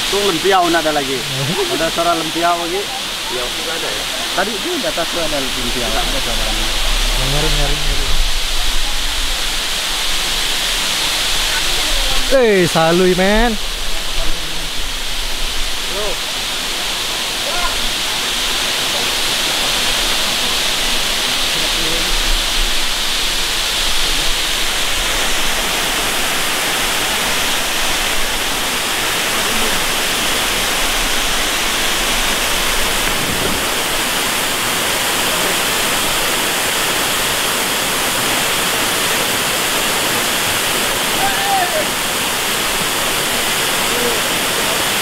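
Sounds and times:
waterfall rushing: 0:00.0 - 0:45.0.

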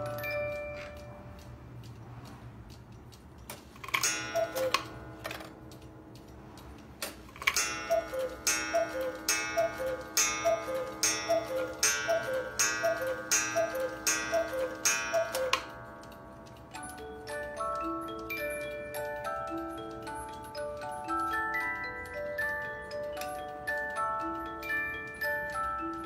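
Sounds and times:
cuckoo clock calls: 0:00.0 - 0:01.6, 0:03.9 - 0:05.5, 0:07.4 - 0:26.0
clock strikes: 0:00.0 - 0:26.0
pendulum ticking: 0:07.4 - 0:26.0.

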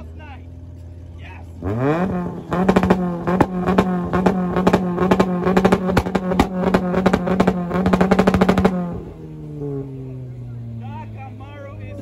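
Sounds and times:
car engine hitting rev limiter: 0:01.6 - 0:10.7.

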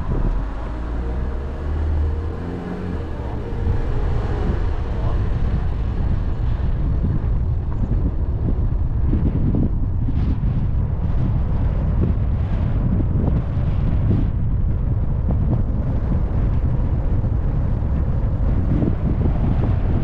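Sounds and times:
steady pitched hum: 0:00.0 - 0:11.7
car engine and tyre rumble: 0:00.0 - 0:20.0
wind buffeting microphone: 0:00.0 - 0:20.0.

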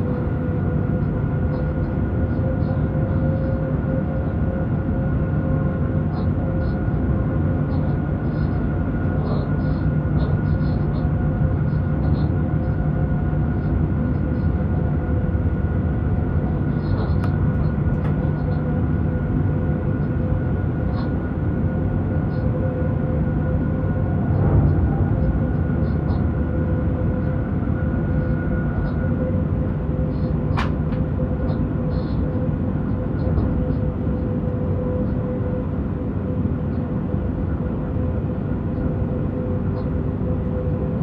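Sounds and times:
traction equipment whine: 0:09.2 - 0:41.0
wheels rumbling on rail: 0:20.6 - 0:41.0.

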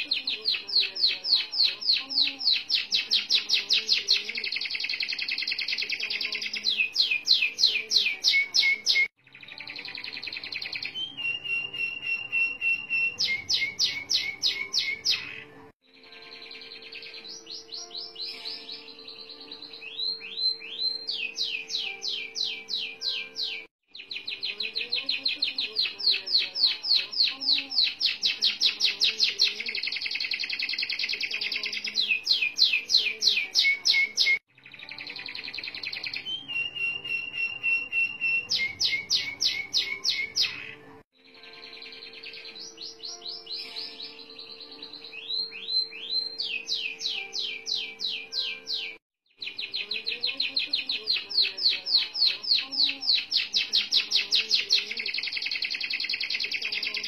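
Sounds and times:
canary singing trills: 0:00.0 - 0:57.0.

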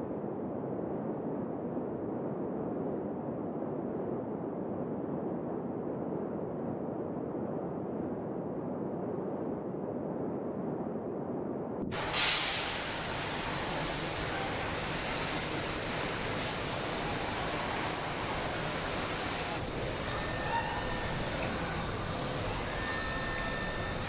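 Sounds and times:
hissing machine noise: 0:11.8 - 0:24.0.

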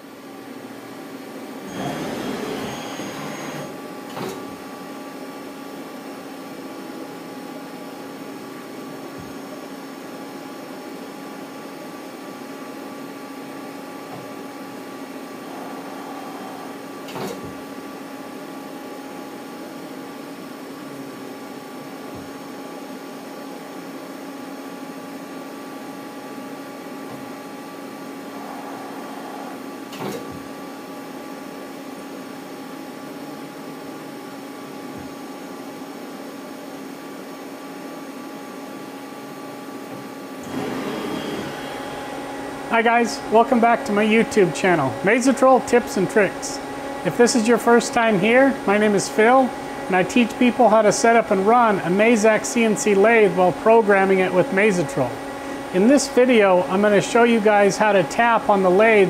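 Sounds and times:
lathe machine hum with tones: 0:00.0 - 0:04.0, 0:13.0 - 0:17.1, 0:25.3 - 0:29.9, 0:40.3 - 0:59.0.

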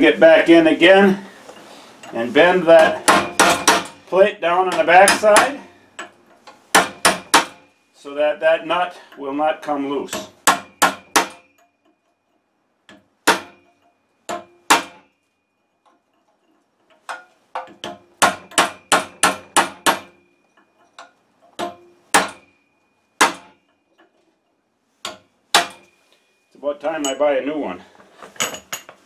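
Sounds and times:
hammer striking metal: 0:02.0 - 0:04.1, 0:04.7 - 0:07.7, 0:10.1 - 0:12.1, 0:12.9 - 0:15.1, 0:17.1 - 0:23.8, 0:25.0 - 0:26.0.

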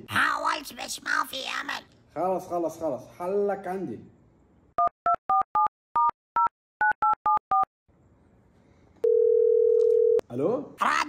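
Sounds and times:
phone keypad dialing tones: 0:09.0 - 0:10.2
phone line ringing tone: 0:09.0 - 0:10.2.

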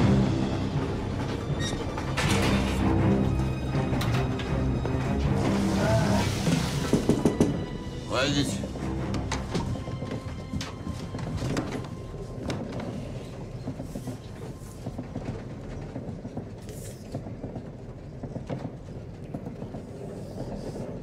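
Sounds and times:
train carriage rumble: 0:00.0 - 0:21.0
clicks and knocks of running gear: 0:09.1 - 0:21.0.

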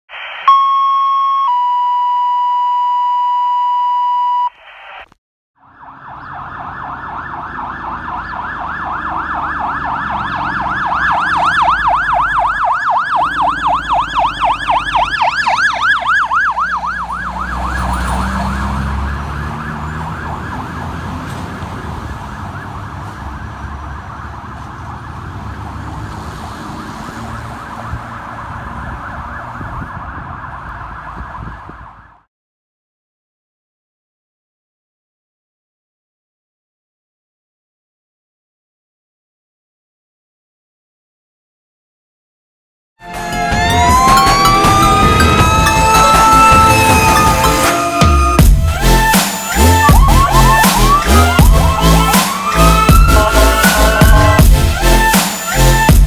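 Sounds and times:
fire truck siren yelping: 0:00.1 - 0:04.5, 0:05.6 - 0:32.3, 0:43.0 - 0:56.0
two-tone electronic page tones: 0:00.4 - 0:04.6
diesel engine rumble: 0:43.0 - 0:56.0.

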